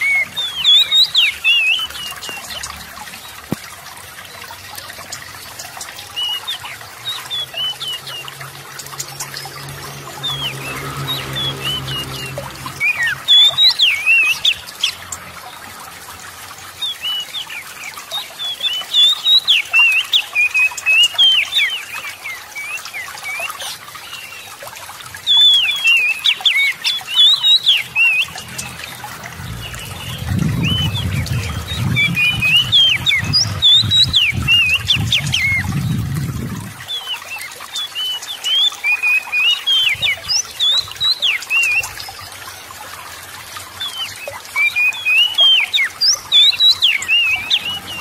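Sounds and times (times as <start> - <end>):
low rumble: 29.3 - 33.7
bird singing whistled notes: 29.4 - 35.9.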